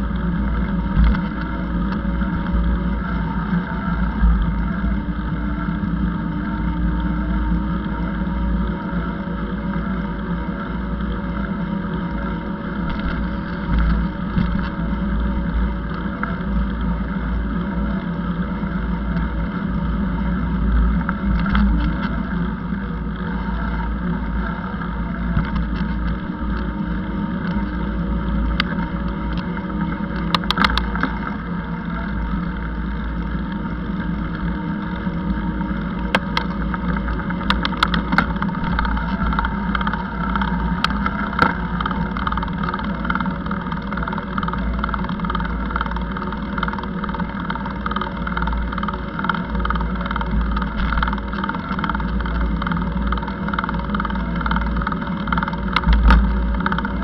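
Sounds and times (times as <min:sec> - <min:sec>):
sharp clicking rattles: 0:19.0 - 0:57.0.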